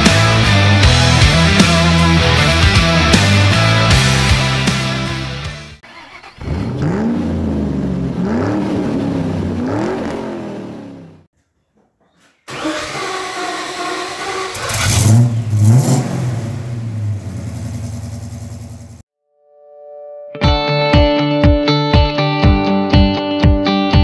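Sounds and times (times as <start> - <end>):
car engine revving: 5.9 - 11.3, 12.5 - 19.0
car engine idling: 12.5 - 19.0.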